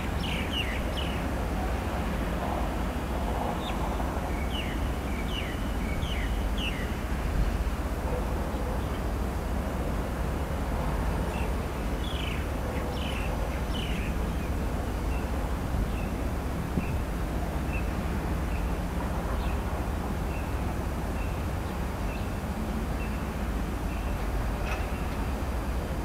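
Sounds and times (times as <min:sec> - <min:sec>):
small birds chirping: 0:00.0 - 0:01.4, 0:11.4 - 0:16.2
low background rumble: 0:00.0 - 0:26.0.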